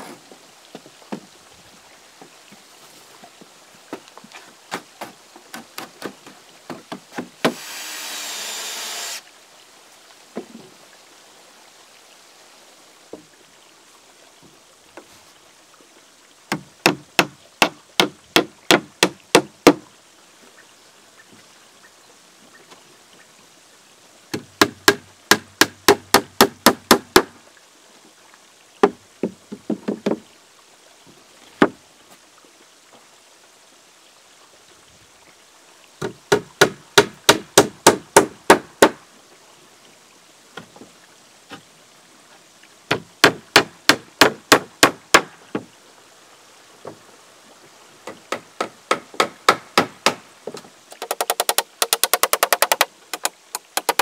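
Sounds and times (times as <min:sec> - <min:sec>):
hammer striking timber boards: 0:05.0 - 0:08.7, 0:16.5 - 0:19.8, 0:24.4 - 0:27.3, 0:36.0 - 0:39.0, 0:42.9 - 0:45.7, 0:48.3 - 0:50.2, 0:51.0 - 0:54.0
power tool whir: 0:07.5 - 0:09.2.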